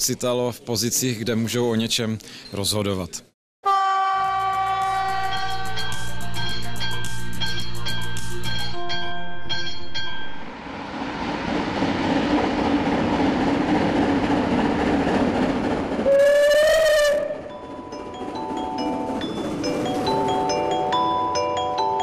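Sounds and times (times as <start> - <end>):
train whistle blast: 3.6 - 5.9, 16.0 - 17.5
steam locomotive rumbling: 4.2 - 22.0.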